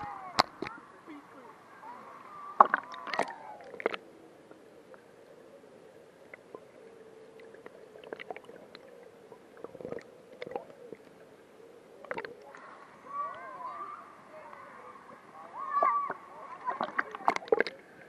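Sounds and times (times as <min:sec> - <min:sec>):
faint steady hum: 0:00.0 - 0:18.0
water gurgling underwater: 0:02.3 - 0:05.4, 0:06.2 - 0:11.1, 0:11.9 - 0:13.3, 0:15.2 - 0:18.0.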